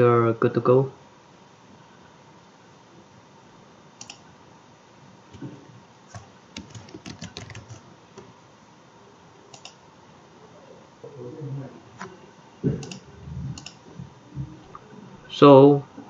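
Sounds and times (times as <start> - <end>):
keyboard typing clicks: 4.0 - 4.2, 6.1 - 7.8, 9.5 - 9.8, 13.6 - 13.8.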